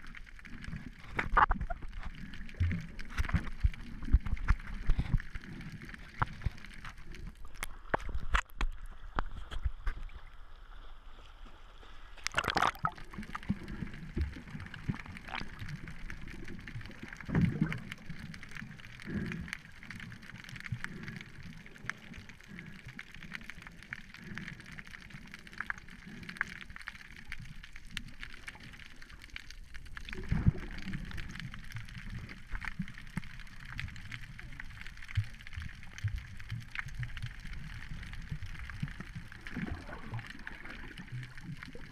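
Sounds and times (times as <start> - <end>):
underwater gurgling and sloshing: 0.0 - 41.9
water rush: 12.2 - 16.6.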